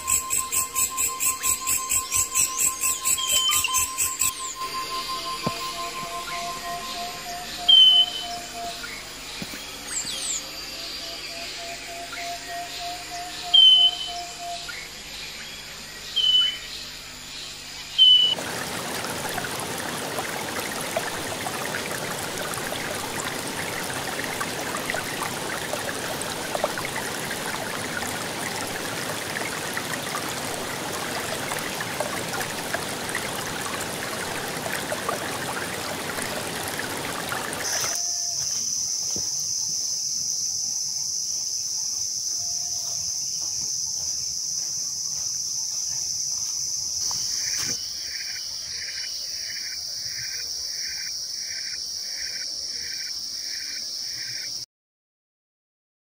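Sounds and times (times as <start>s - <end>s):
stream and waterfall: 0.0s - 14.8s, 17.8s - 54.6s
high-pitched insect drone: 0.0s - 18.0s, 37.6s - 48.2s
insect chirping: 0.0s - 54.6s.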